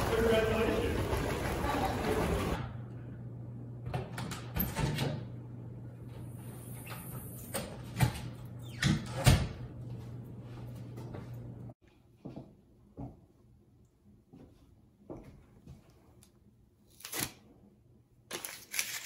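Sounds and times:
door opening and shutting: 0:06.7 - 0:09.6.

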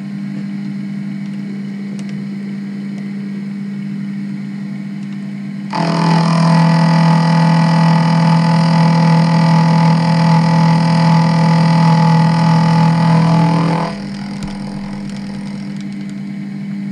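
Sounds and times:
low steady hum: 0:00.0 - 0:16.9
small electric motor running: 0:05.7 - 0:16.3.

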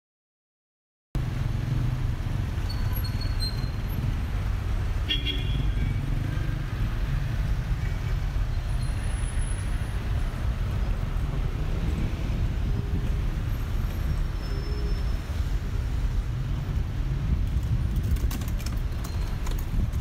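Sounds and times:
traffic rumble: 0:01.2 - 0:20.0
car horn toot: 0:05.1 - 0:05.9.

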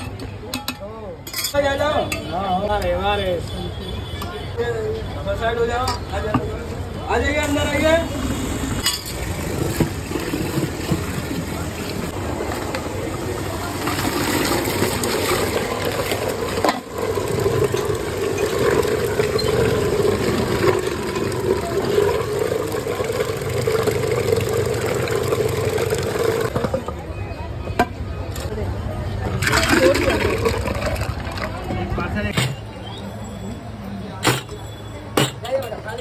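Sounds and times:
electric churner motor hum: 0:13.8 - 0:26.6.

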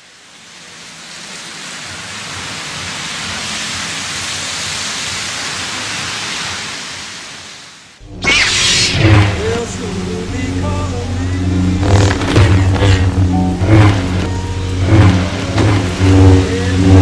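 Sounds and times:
low rumble: 0:08.0 - 0:17.0.

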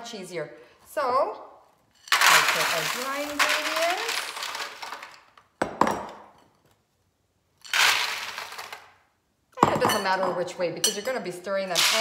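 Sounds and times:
dry snacks poured into foil pan: 0:02.0 - 0:05.3, 0:07.6 - 0:09.0.

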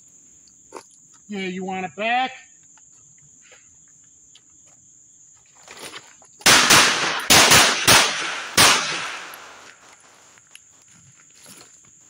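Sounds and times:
pistol shots echoing: 0:06.4 - 0:09.8.

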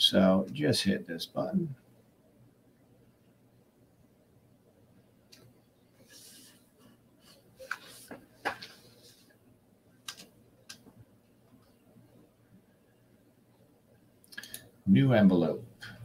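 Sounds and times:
soft rustle: 0:05.9 - 0:09.5.

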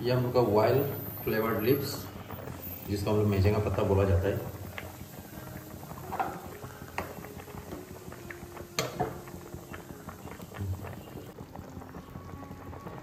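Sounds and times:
pot boiling and bubbling: 0:00.0 - 0:13.0.

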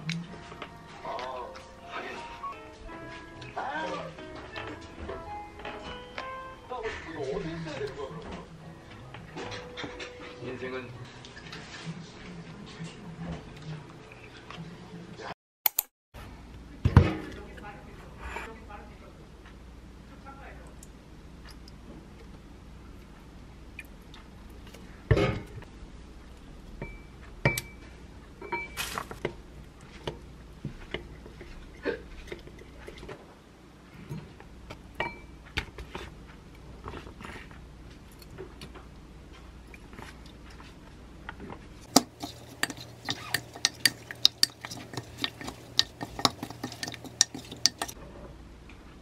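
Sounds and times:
chicken stirred in marinade: 0:41.8 - 0:48.0
spoon tapping glass bowl: 0:41.9 - 0:48.0.

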